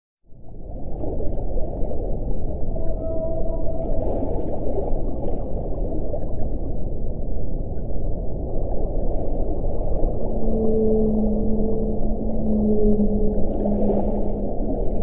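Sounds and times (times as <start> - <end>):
low underwater rumble: 0.3 - 15.0
whale call: 2.5 - 5.2, 9.6 - 15.0
faint gurgling: 9.5 - 15.0.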